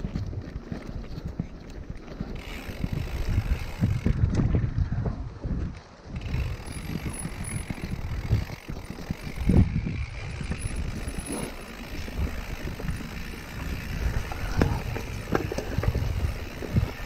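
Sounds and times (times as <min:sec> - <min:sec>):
bike jolts: 0:00.0 - 0:17.0
bike rattling over bumps: 0:00.0 - 0:17.0
tyres on dirt trail: 0:00.0 - 0:17.0
freewheel ticking: 0:06.2 - 0:17.0.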